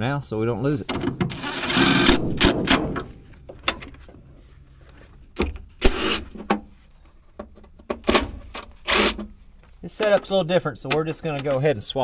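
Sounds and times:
knocks on metal: 2.1 - 3.3
cordless driver bursts: 5.8 - 6.2, 8.8 - 9.2.

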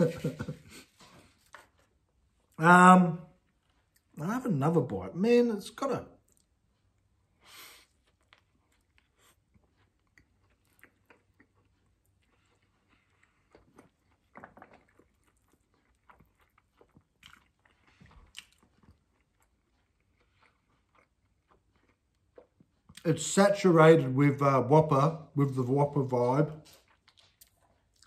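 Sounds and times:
person chewing food: 3.3 - 4.2, 6.2 - 23.3, 26.2 - 28.0.

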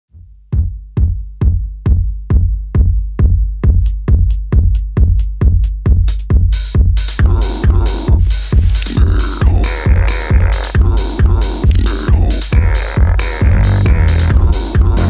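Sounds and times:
drum machine kick drum: 0.1 - 15.0.

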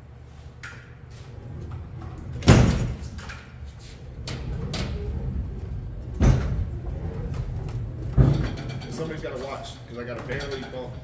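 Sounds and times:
heavy metal clunks: 8.0 - 9.1.

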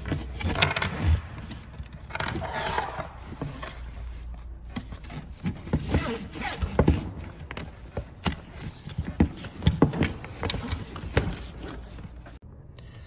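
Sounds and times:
webbing strap rustling and scraping: 0.0 - 12.4.

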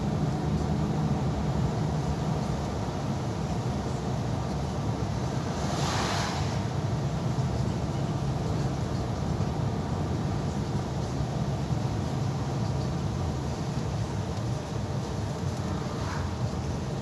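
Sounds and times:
vehicle engine and tyre noise: 0.0 - 17.0
brief whoosh: 5.5 - 6.8.

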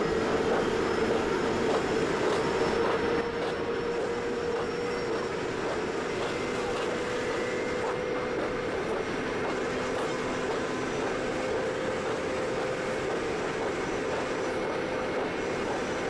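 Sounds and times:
steady hum: 0.0 - 16.0.

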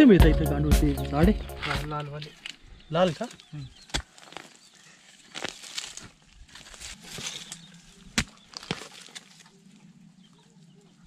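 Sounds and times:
scraping and rustling in soil: 2.2 - 11.0.

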